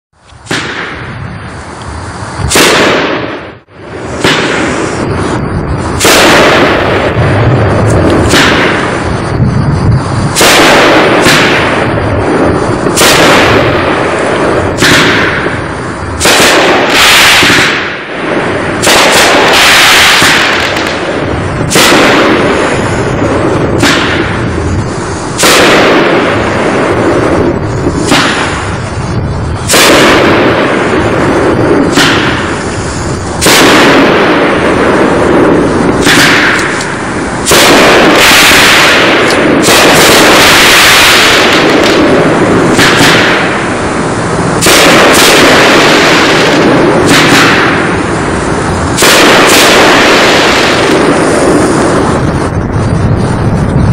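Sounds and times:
fireworks bangs: 0:00.1 - 0:53.9
hiss of breaking fireworks shells: 0:00.2 - 0:53.9.

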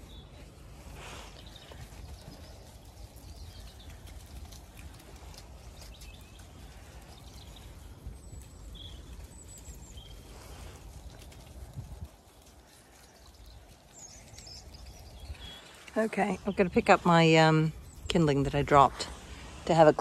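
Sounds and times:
wind rumble on microphone: 0:00.0 - 0:15.8
sheep steps on muddy ground: 0:00.0 - 0:16.9.

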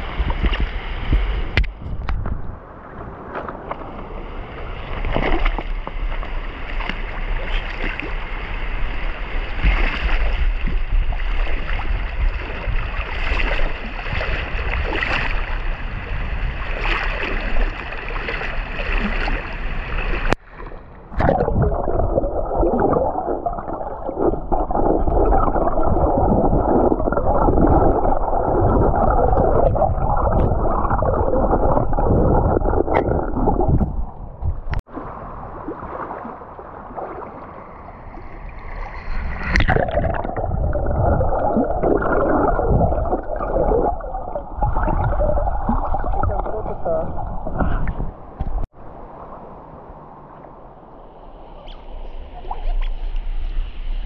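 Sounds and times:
muffled underwater churning: 0:00.0 - 0:53.2
water running and gurgling: 0:21.2 - 0:34.9, 0:39.5 - 0:48.7.

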